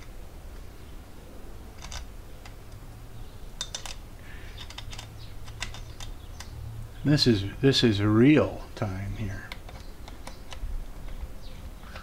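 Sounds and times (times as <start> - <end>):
low steady hum: 0.0 - 12.0
small metal clicks and taps: 3.6 - 6.6, 9.5 - 11.3.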